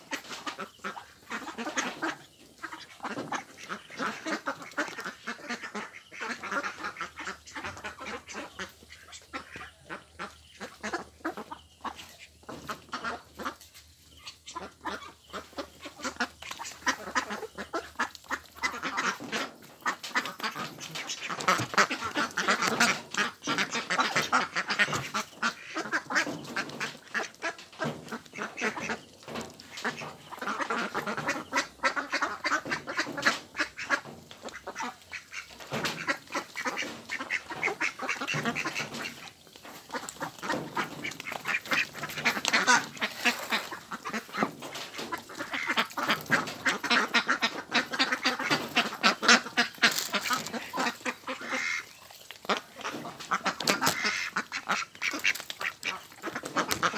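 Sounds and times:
flock of ducks quacking: 0:00.0 - 0:56.9.

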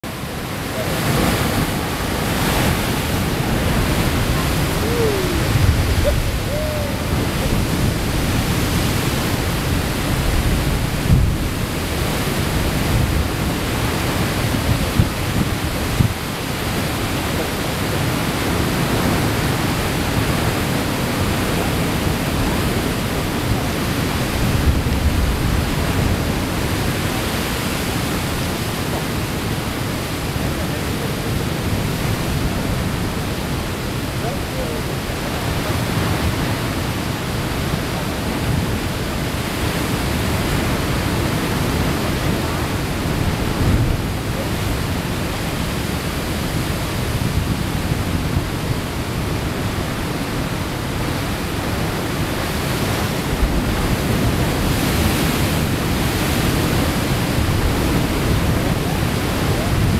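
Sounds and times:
surf breaking against rocks: 0:00.1 - 0:34.2, 0:35.0 - 0:59.9.

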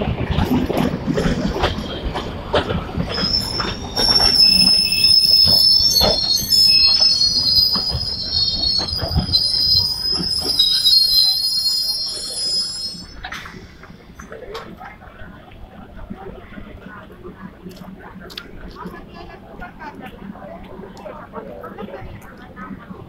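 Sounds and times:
train coaches passing: 0:00.0 - 0:23.0
train wheels squealing on rails: 0:01.2 - 0:14.5.

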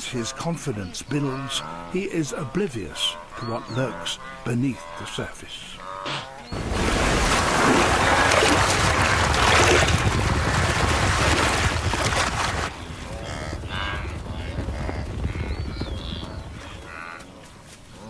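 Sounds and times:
wildebeest calls: 0:00.0 - 0:06.5
splashing water and trampling: 0:06.5 - 0:12.7.

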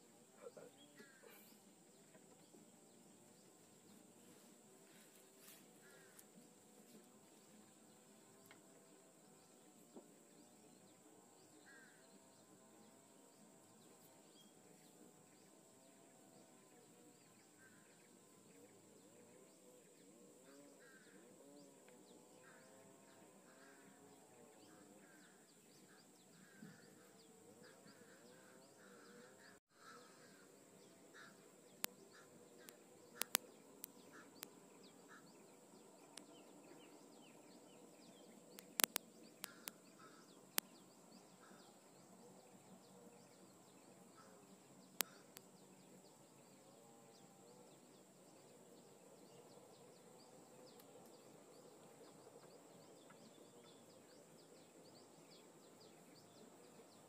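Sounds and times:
distant birds calling: 0:00.0 - 0:57.0
sharp clicks: 0:32.6 - 0:33.9, 0:38.6 - 0:39.8.

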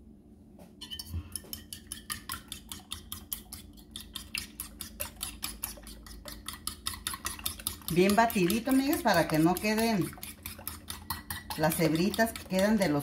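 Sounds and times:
fork beating eggs in a bowl: 0:00.8 - 0:13.0.

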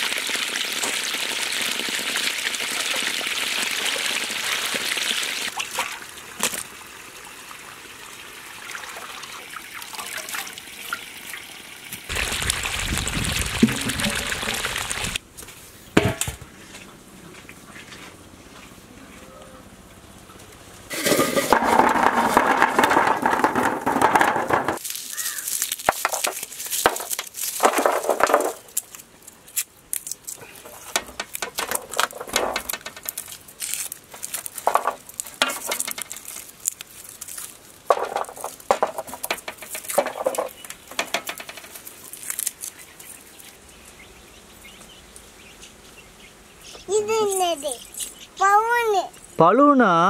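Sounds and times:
dense clatter: 0:20.9 - 0:24.8, 0:30.9 - 0:33.2, 0:37.9 - 0:41.8
garlic skins crackling: 0:24.8 - 0:44.0.

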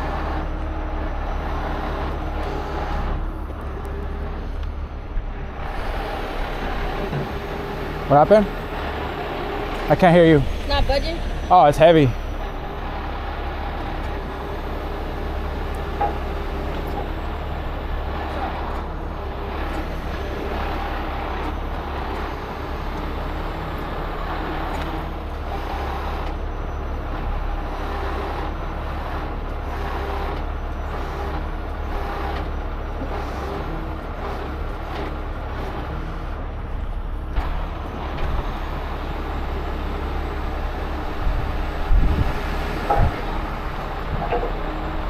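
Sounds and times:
diesel engine running: 0:00.0 - 0:45.0.

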